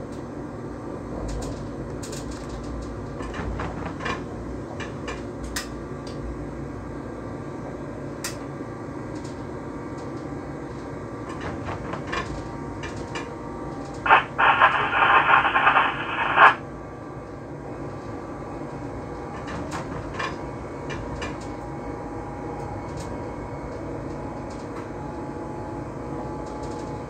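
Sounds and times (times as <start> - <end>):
clicks: 14.1 - 16.6
loud electronic buzz: 14.1 - 16.6.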